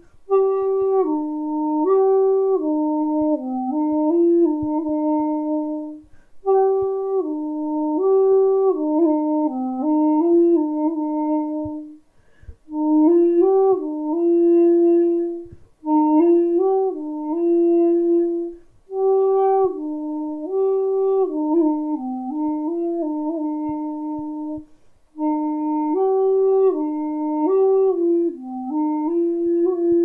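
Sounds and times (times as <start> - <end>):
bamboo flute melody: 0.0 - 30.0.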